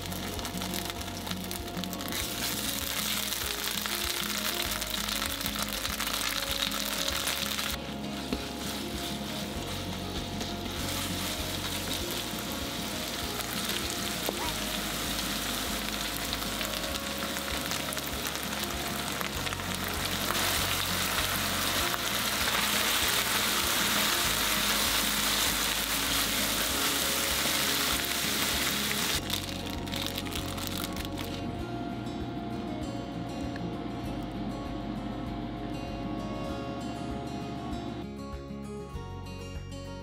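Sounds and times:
meat sizzling in a frying pan: 0.0 - 7.8, 10.4 - 30.9.

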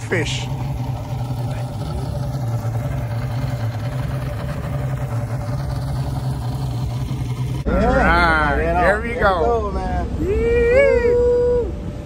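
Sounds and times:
outboard motor running: 0.0 - 10.2.

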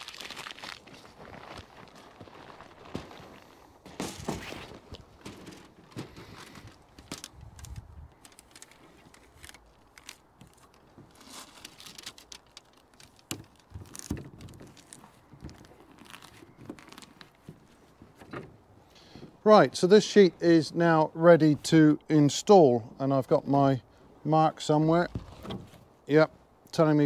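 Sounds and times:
plastic sheet crinkling and rustling: 0.0 - 18.2.

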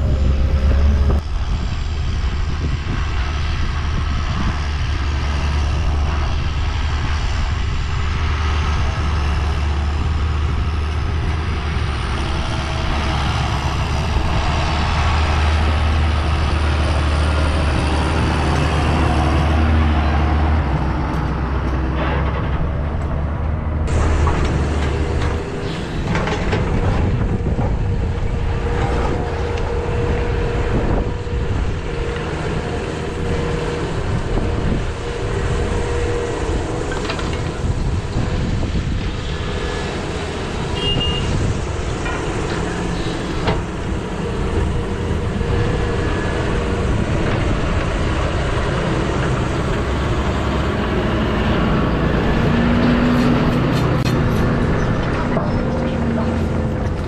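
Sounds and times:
excavator engine working: 0.0 - 57.0
tractor diesel engine droning: 0.0 - 57.0.

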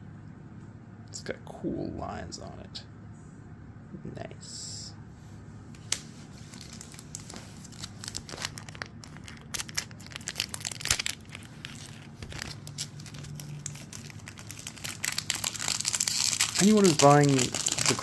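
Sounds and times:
foil wrappers crinkling: 5.8 - 18.0.

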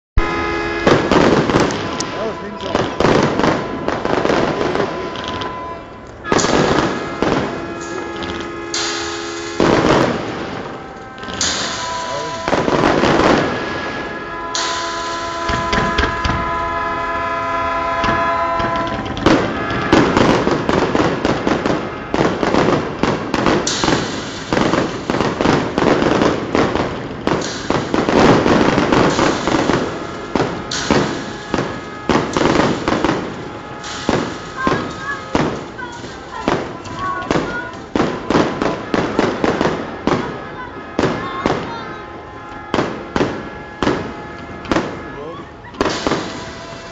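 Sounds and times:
steady pitched tone: 0.2 - 21.2
fireworks bangs and crackle: 0.2 - 46.9.

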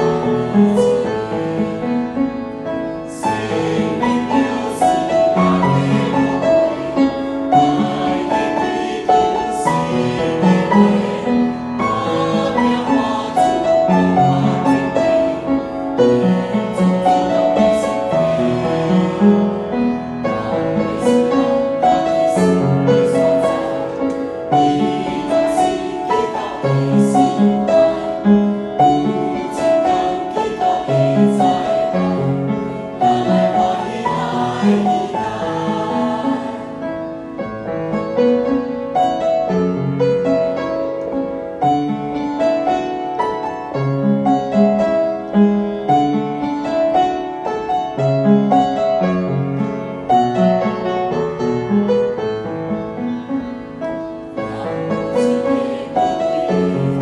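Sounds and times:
choir singing a hymn: 0.0 - 39.6, 54.1 - 57.0
piano accompaniment: 0.0 - 57.0.

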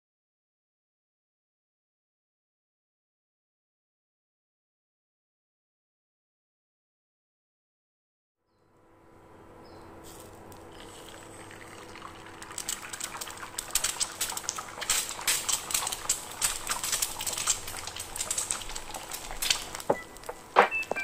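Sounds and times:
egg sizzling and popping in oil: 10.3 - 21.0.

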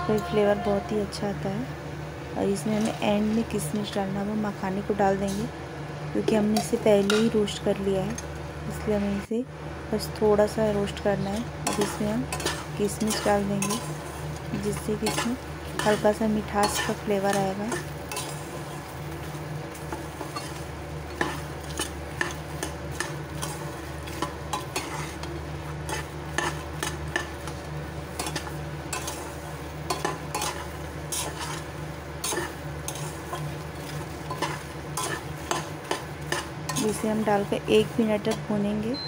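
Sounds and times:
steady low hum: 0.0 - 39.0
roasting nuts rattling: 11.0 - 38.6
metal spatula scraping pan: 11.6 - 18.9, 19.9 - 27.6, 29.9 - 37.1.

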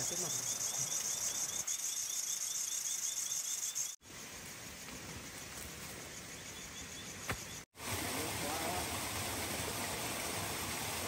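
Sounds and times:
insects chirping: 0.0 - 7.7
outdoor background: 0.0 - 11.0.

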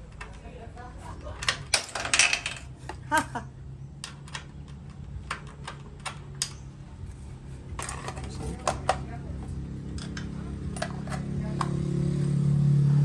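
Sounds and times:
metal parts clinking: 1.3 - 2.8, 4.0 - 6.8.

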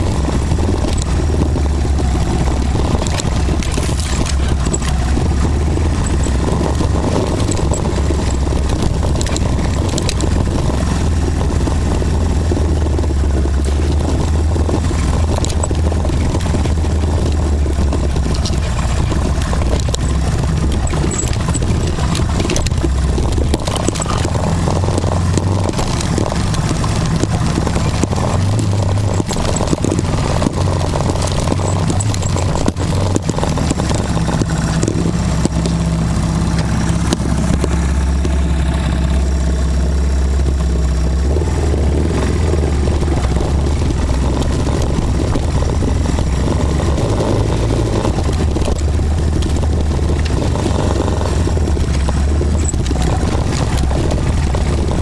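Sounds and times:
off-road vehicle engine running: 0.0 - 55.0
vehicle knocks and rattles: 0.0 - 55.0.

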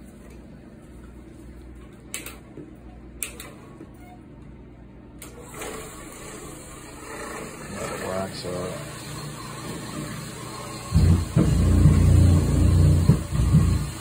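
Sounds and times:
floor machine motor hum: 5.4 - 14.0.

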